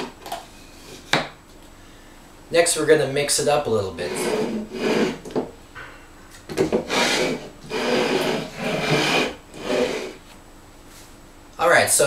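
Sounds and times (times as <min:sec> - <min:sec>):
cans scraping across table: 0:04.0 - 0:05.3, 0:06.7 - 0:10.2.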